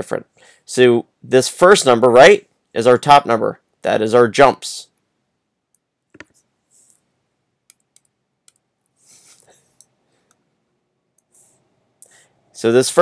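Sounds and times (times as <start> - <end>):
computer mouse clicks: 5.7 - 7.0, 7.7 - 8.7
soft breathy hisses: 9.0 - 10.3, 11.3 - 12.4.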